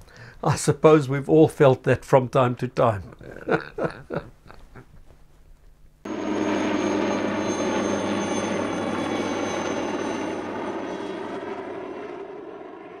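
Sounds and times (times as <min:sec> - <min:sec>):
aircraft engine drone: 0:06.1 - 0:13.0.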